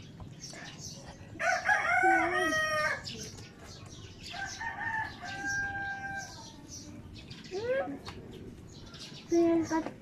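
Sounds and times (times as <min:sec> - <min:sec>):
rooster crowing: 0:01.4 - 0:03.0, 0:04.3 - 0:06.3.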